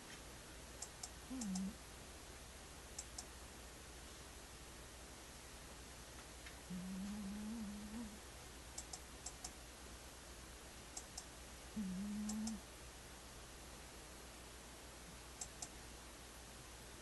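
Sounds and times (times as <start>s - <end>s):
cat snoring: 1.3s - 1.8s, 6.7s - 8.2s, 11.8s - 12.6s
faint sharp clicks: 8.8s - 9.6s, 12.2s - 12.6s, 15.4s - 15.8s.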